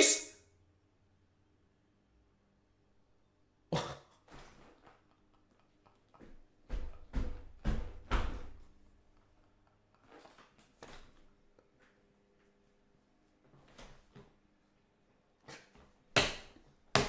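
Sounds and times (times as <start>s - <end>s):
man coughing: 3.7s - 4.2s.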